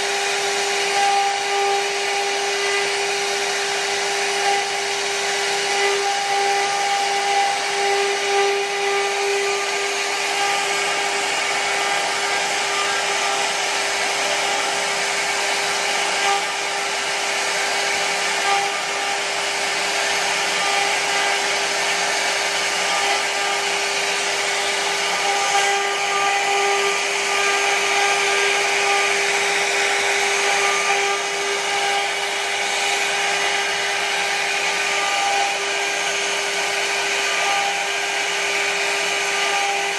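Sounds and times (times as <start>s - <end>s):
router spindle whine: 0.0s - 39.9s.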